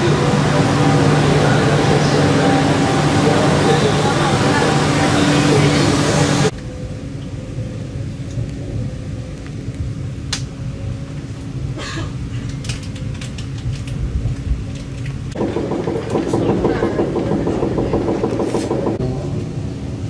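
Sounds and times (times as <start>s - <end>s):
low steady rumble: 0.0s - 20.0s.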